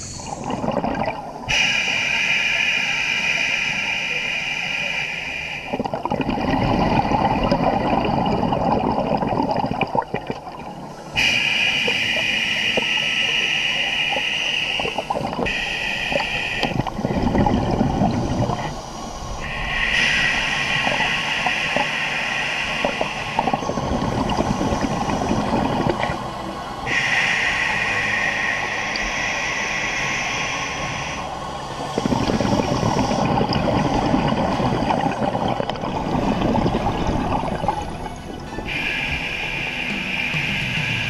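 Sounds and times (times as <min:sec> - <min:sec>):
gurgling exhaled bubbles: 0:00.0 - 0:02.3, 0:05.6 - 0:39.6
hissing regulator inhalation: 0:01.5 - 0:09.6, 0:11.2 - 0:37.9, 0:38.6 - 0:41.0.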